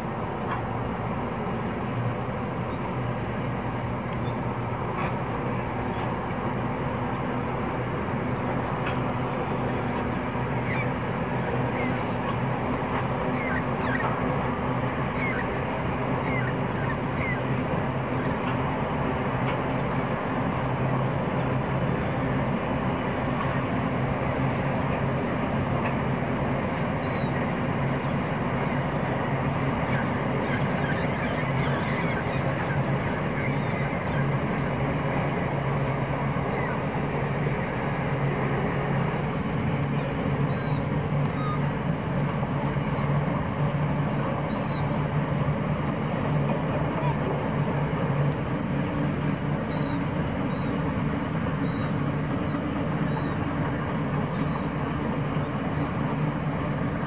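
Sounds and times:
distant locomotive engine drone: 0.0 - 57.0
bird chirps: 13.4 - 14.1, 15.2 - 15.5.

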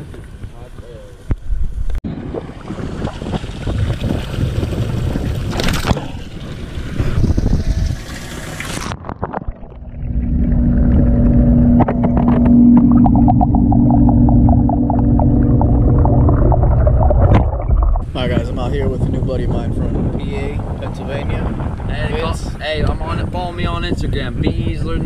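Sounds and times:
muffled underwater rushing: 1.4 - 24.4
hose water splashing into bucket: 2.4 - 12.5
steady low hum: 9.7 - 20.7.

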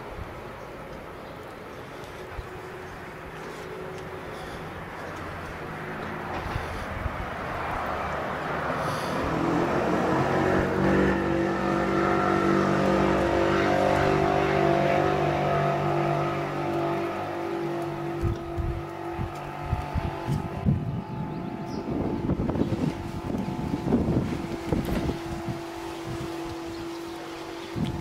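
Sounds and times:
engine running: 0.0 - 28.0.

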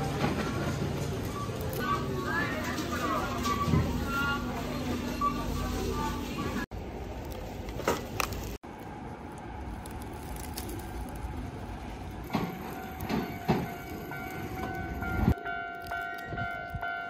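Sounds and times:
train rumbling past: 8.7 - 17.0
level-crossing alarm bell ringing: 12.6 - 17.0.

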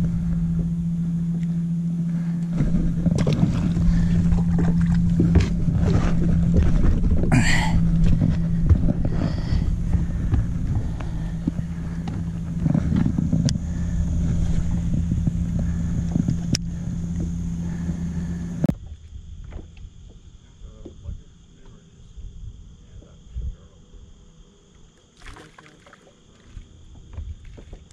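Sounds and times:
boat motor running: 0.0 - 21.9, 24.9 - 27.9
water rushing past hull: 25.2 - 26.1.

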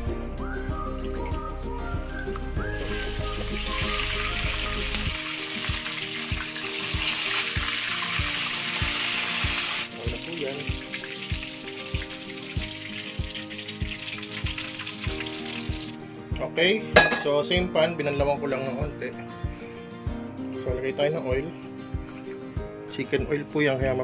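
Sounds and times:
pork chop sizzling in hot oil: 2.7 - 16.1, 17.0 - 17.3.

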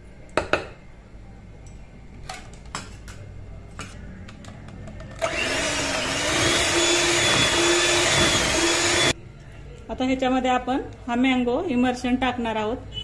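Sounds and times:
hand mixer motor whirring: 5.2 - 9.2.

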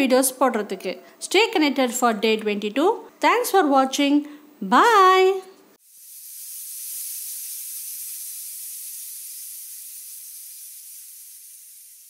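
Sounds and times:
high-pitched hiss: 5.8 - 12.0.

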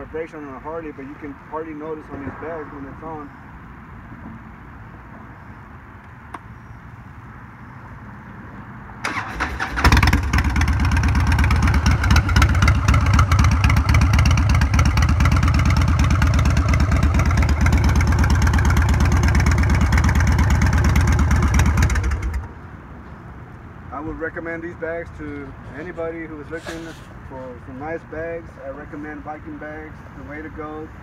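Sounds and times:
electric starter cranking: 9.0 - 10.8
motorcycle engine idling: 9.1 - 22.5.

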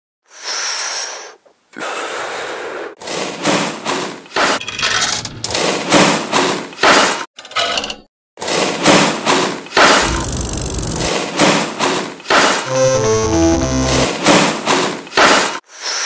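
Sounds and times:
slot machine mechanical rattling: 10.0 - 11.1.

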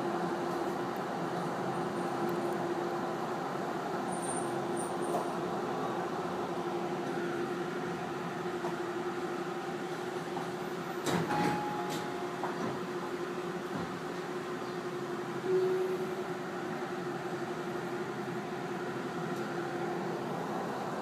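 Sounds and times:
electric train running noise: 0.0 - 21.0
brief higher tone: 15.4 - 16.2.

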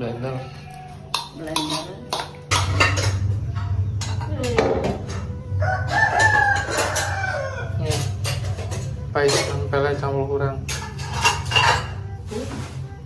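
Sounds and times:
rooster crowing: 5.6 - 7.8.

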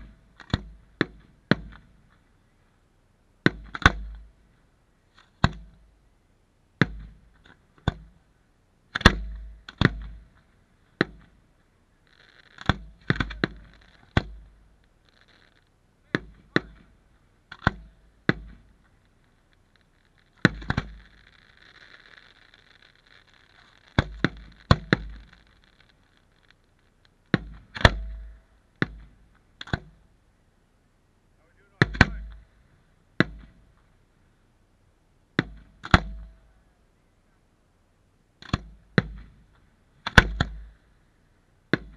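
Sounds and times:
faint hiss: 0.0 - 41.9
fireworks booming: 8.9 - 30.1, 31.5 - 34.0.

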